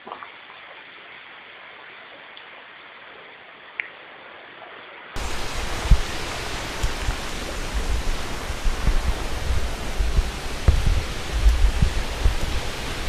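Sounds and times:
faint hiss: 0.0s - 13.0s
loud rushing noise: 5.2s - 13.0s
low thumps: 5.2s - 13.0s.

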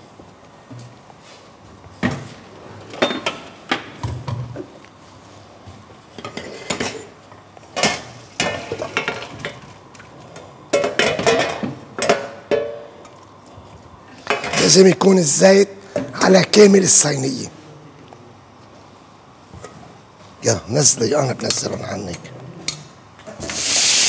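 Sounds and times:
pots and pans clattering: 7.8s - 9.6s, 10.7s - 12.9s.

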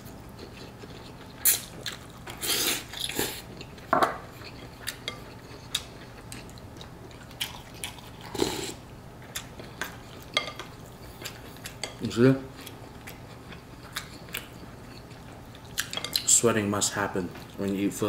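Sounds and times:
mouth eating sounds: 7.4s - 8.8s.

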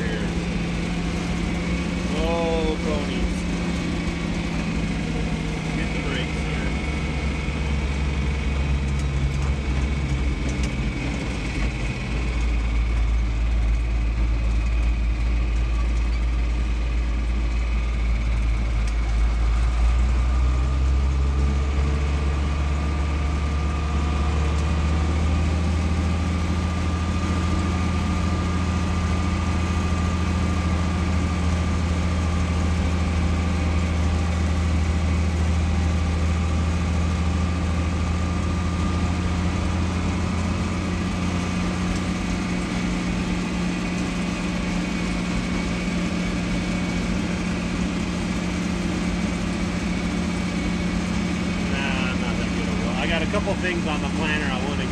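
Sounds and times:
tractor engine running: 0.0s - 54.9s.

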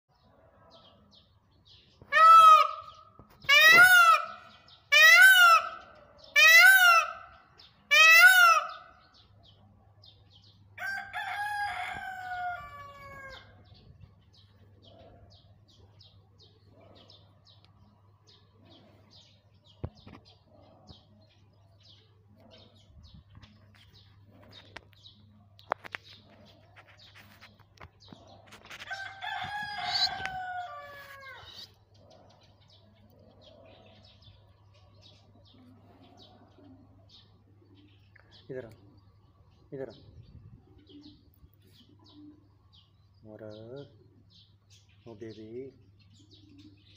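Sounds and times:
peacock calling: 1.9s - 9.4s, 25.6s - 34.5s.

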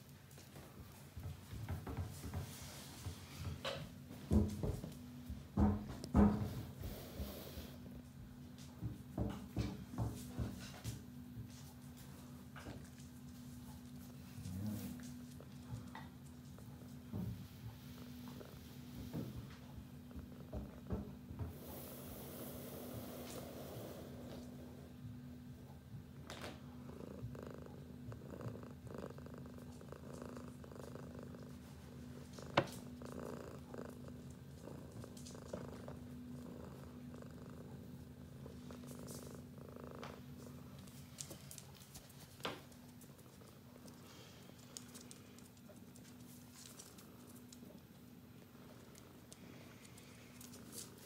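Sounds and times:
cat purring: 12.3s - 51.0s.

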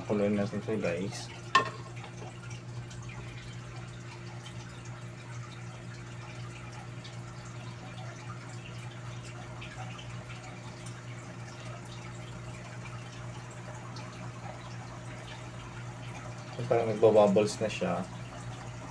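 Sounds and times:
bubbling pops in a pot: 1.5s - 2.4s.

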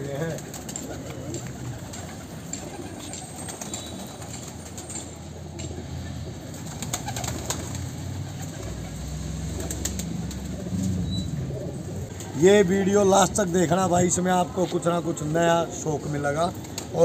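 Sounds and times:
pigeons cooing: 0.0s - 12.4s.

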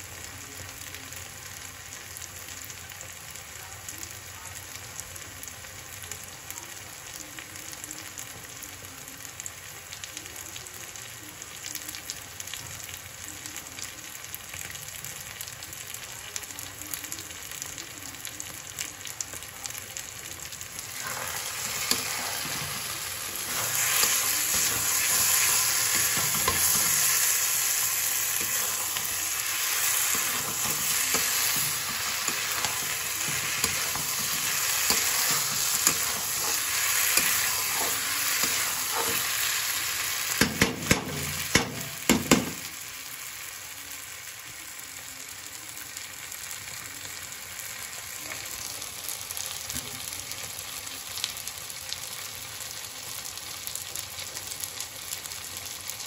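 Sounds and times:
food sizzling in a pan: 0.0s - 56.0s
spatula knocking on pan: 40.4s - 42.6s.

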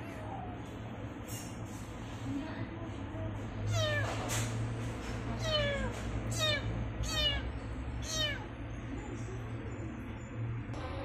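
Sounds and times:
kitten meowing: 3.7s - 4.2s, 5.4s - 8.5s
steady low hum: 4.6s - 11.0s.

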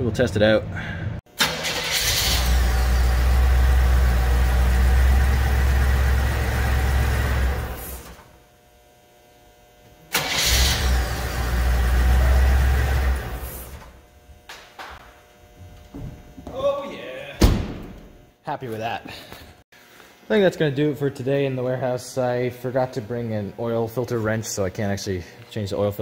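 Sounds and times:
gasoline engine running: 1.4s - 8.3s, 10.1s - 14.0s.

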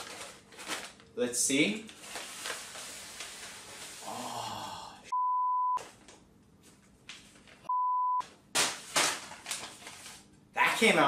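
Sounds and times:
paper bag rustling: 0.0s - 1.0s, 1.8s - 4.0s, 8.6s - 10.4s
censor bleeps: 5.1s - 5.8s, 7.7s - 8.2s.

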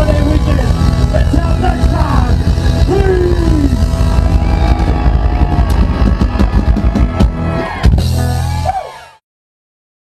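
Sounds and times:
live country-rock band: 0.0s - 9.2s
drum hits: 0.8s - 8.4s.

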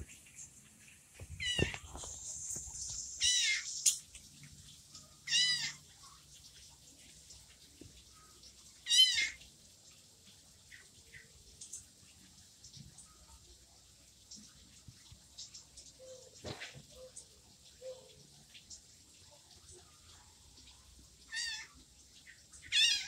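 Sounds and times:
kitten meowing: 5.3s - 5.8s.

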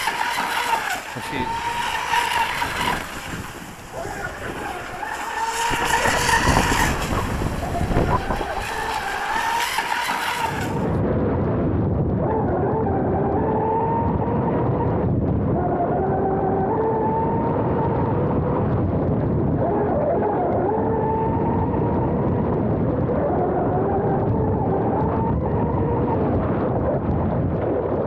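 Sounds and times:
electric motor whine: 0.0s - 11.0s
rush of water: 0.0s - 11.0s
wind: 0.0s - 28.0s.

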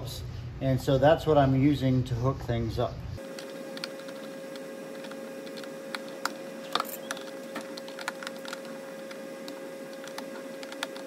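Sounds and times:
steady hum: 2.8s - 11.0s
screwdriver clicking on plastic: 3.3s - 11.0s.

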